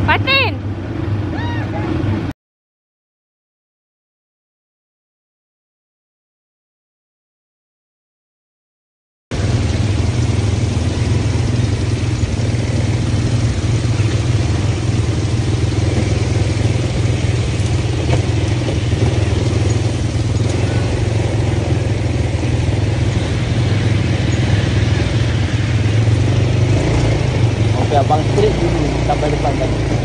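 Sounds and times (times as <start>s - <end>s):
quad bike engine drone: 0.0s - 2.3s, 9.3s - 30.0s.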